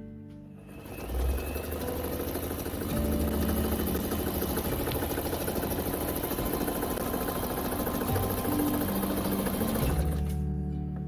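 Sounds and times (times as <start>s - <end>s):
electric sewing machine stitching: 0.6s - 10.4s.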